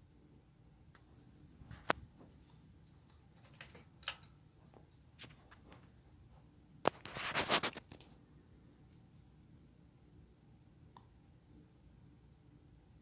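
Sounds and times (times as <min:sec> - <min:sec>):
ceiling fan humming: 0:00.0 - 0:13.0.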